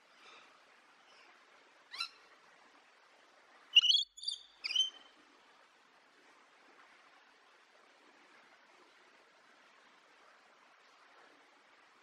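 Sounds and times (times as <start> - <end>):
faint birds twittering: 3.8 - 5.1.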